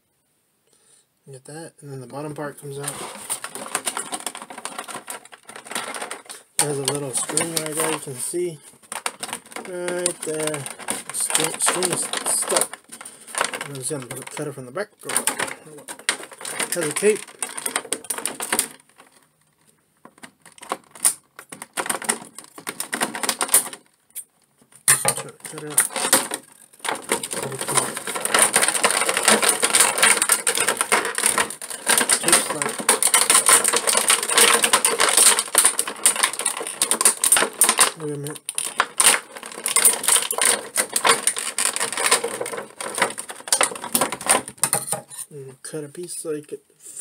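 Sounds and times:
plastic packaging crinkling: 0:02.1 - 0:45.2
plastic snapping: 0:08.8 - 0:45.2.

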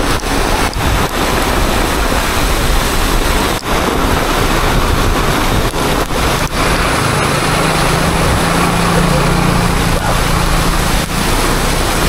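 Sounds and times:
heavy rain on wet street: 0:00.0 - 0:12.0
truck diesel engine hum: 0:03.7 - 0:12.0.

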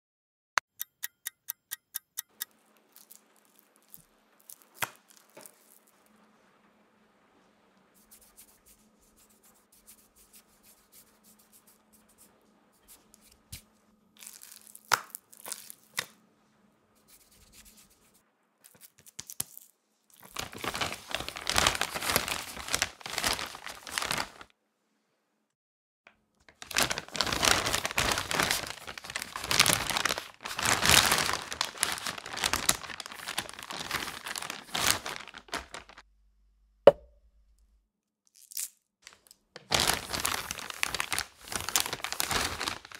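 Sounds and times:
plastic sheet crinkling: 0:02.8 - 0:06.1, 0:14.2 - 0:16.1, 0:18.7 - 0:24.5, 0:26.4 - 0:36.0, 0:39.1 - 0:42.9
plastic pot knocking on wood: 0:36.9 - 0:37.2.

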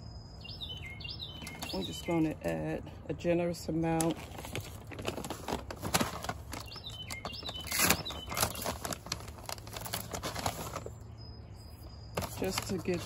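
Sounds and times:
bird chirping: 0:00.0 - 0:02.6, 0:06.5 - 0:13.0
fertilizer bag rustling: 0:01.3 - 0:02.8, 0:03.8 - 0:11.0, 0:12.2 - 0:13.0.

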